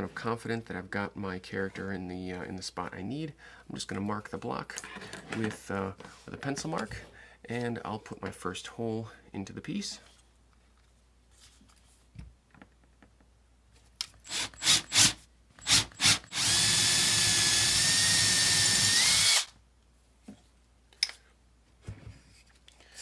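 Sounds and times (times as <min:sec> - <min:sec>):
cordless drill drilling into wood: 0:14.2 - 0:19.6.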